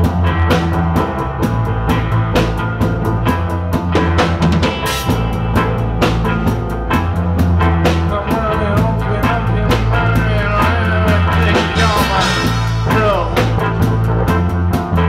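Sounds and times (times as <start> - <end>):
reggae band playing: 0.0 - 15.0
person singing: 7.9 - 13.9.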